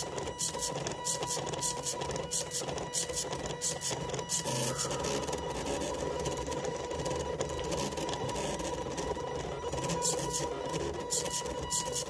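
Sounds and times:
pen scratching on paper: 0.0 - 6.4, 9.7 - 12.0
stepper motors whining: 0.0 - 12.0.

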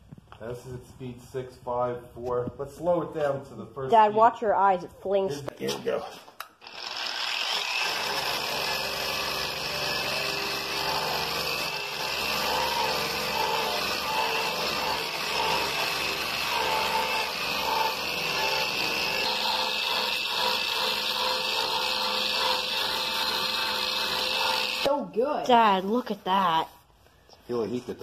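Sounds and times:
paint grinder rasping on metal: 6.6 - 24.9.

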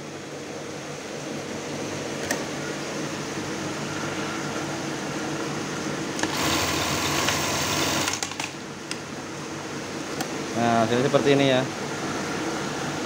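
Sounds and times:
sewing machine motor running: 6.2 - 8.4
sewing machine stitching: 6.2 - 8.4
sewing machine sharp clicks: 6.2 - 8.6.

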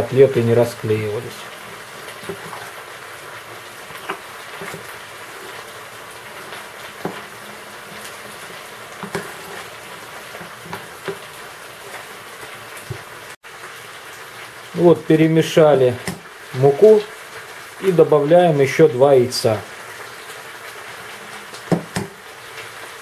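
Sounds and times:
potatoes sizzling in a pan: 0.0 - 23.0.

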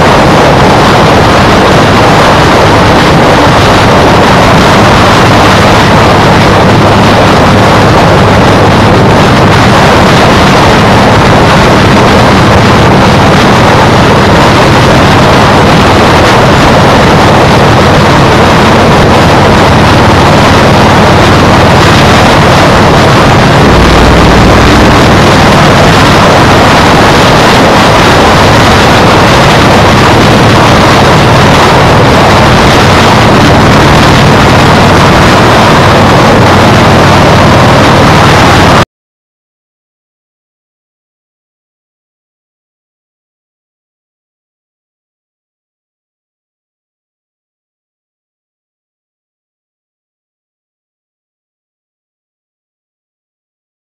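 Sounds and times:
low drone: 0.0 - 38.8
wind noise on microphone: 0.0 - 38.9.

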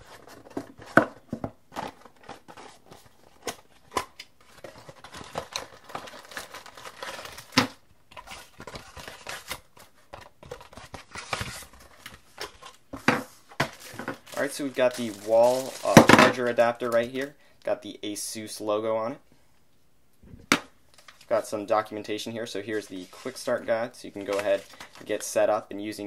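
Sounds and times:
plastic bag crinkling: 4.4 - 12.8, 13.6 - 17.3, 22.5 - 25.5.

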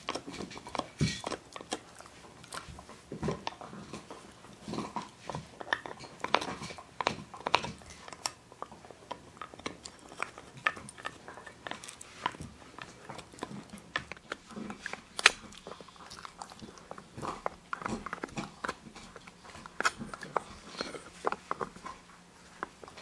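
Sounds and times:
dog gnawing antler: 0.0 - 23.0.

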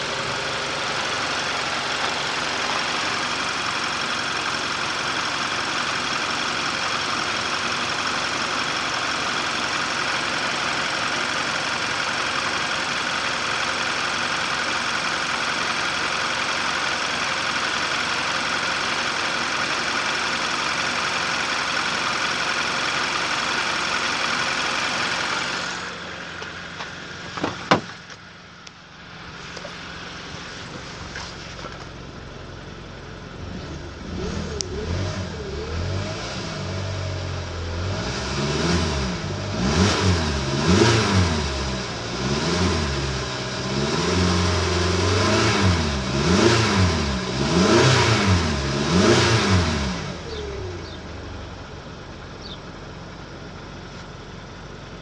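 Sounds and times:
car engine idling and revving: 0.0 - 55.0.

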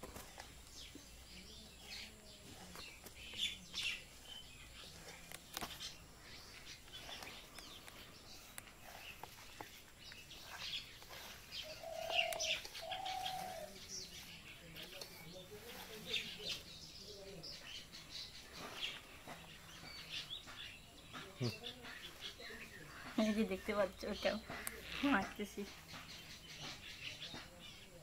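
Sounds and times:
birds chirping: 0.0 - 28.0
longer lower bird calls: 3.0 - 27.4.

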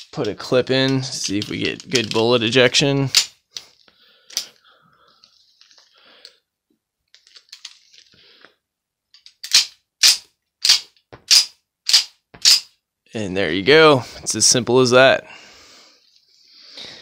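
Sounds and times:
pistol slide racking clacks: 9.2 - 12.7.

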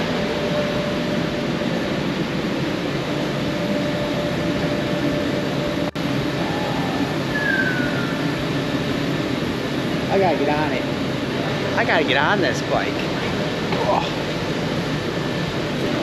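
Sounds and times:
faint constant hum: 0.0 - 16.0
background rumble and hiss: 5.5 - 16.0.

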